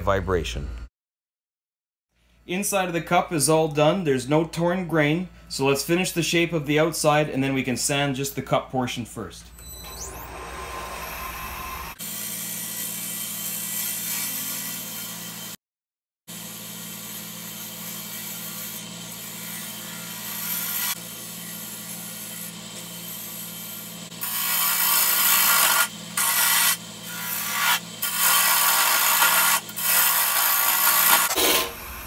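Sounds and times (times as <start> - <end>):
turning tool cutting wood: 9.9 - 15.6, 16.3 - 32.0
lathe motor humming: 10.0 - 12.0.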